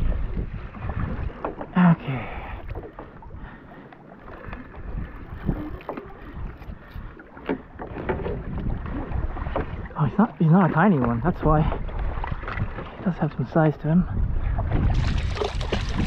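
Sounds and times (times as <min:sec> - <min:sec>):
wind buffeting microphone: 0:00.0 - 0:01.7, 0:04.4 - 0:07.2, 0:07.8 - 0:10.2, 0:11.0 - 0:16.0
water lapping against hull: 0:00.0 - 0:16.0
small knocks and splashes: 0:14.7 - 0:16.0.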